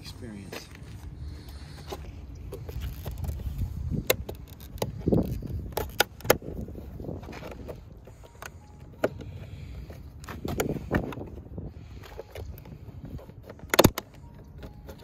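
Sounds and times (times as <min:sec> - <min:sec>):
plastic clicks and snaps: 0:13.5 - 0:15.0.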